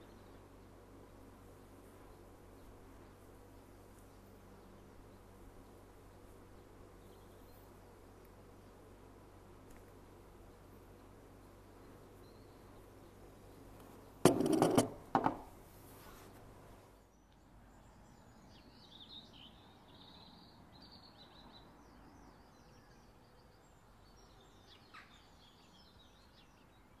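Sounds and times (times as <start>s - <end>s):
faint bird chirps: 10.4s - 14.2s, 16.9s - 27.0s.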